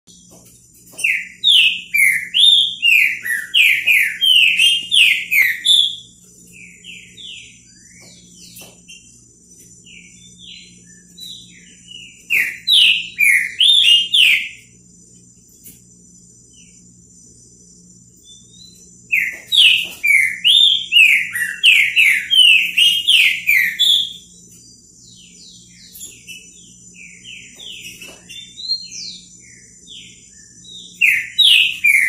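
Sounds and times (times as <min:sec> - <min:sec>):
bird singing: 0:00.1 - 0:32.0.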